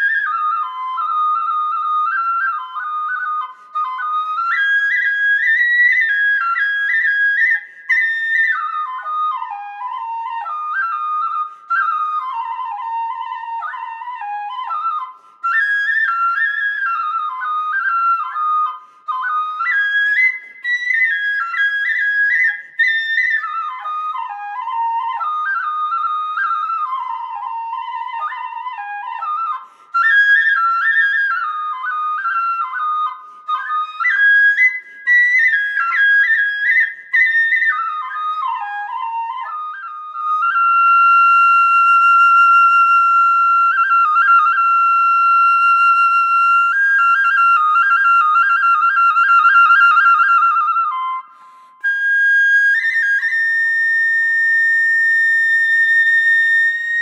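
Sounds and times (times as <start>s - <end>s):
solo flute-like woodwind melody: 0.0s - 57.0s.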